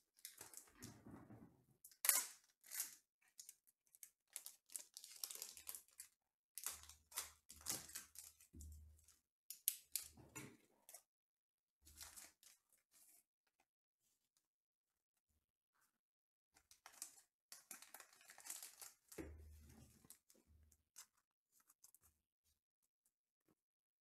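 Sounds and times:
cards and wrappers rustling: 0:04.3 - 0:08.5, 0:12.0 - 0:12.6, 0:16.7 - 0:19.2.

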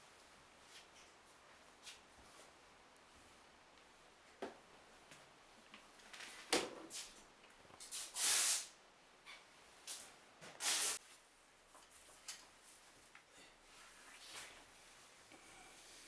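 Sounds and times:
short hissing rushes: 0:07.9 - 0:08.8, 0:10.6 - 0:11.0.

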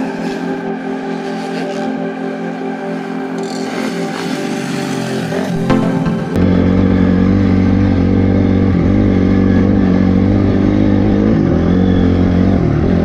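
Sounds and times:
motorcycle engine revving: 0:03.0 - 0:13.0.

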